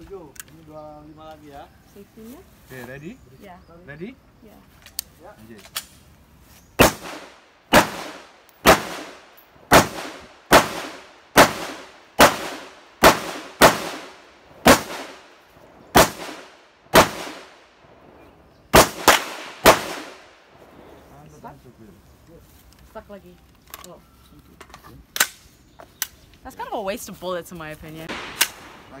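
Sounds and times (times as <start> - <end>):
rifle shots echoing: 6.8 - 21.1, 28.1 - 29.0.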